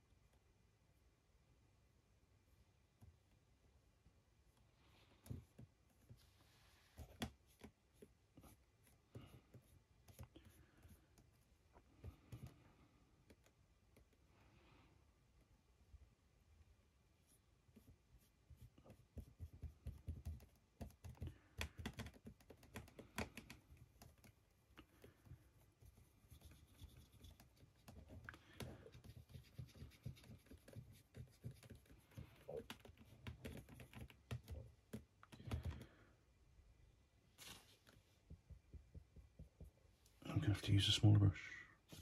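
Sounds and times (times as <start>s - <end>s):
faint clicks and taps: 6.9s - 14.2s, 18.6s - 36.1s, 37.4s - 40.2s.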